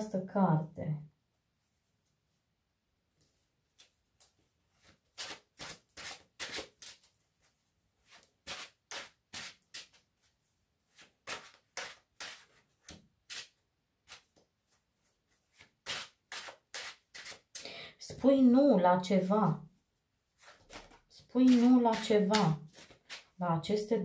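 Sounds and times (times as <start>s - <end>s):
cards being shuffled: 3.8s - 7.1s, 11.0s - 14.4s, 15.5s - 17.6s, 20.4s - 23.4s.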